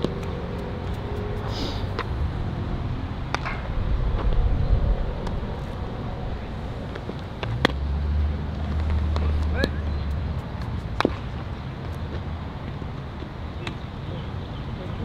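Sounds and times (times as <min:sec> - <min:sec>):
low steady rumble: 0:00.0 - 0:10.2.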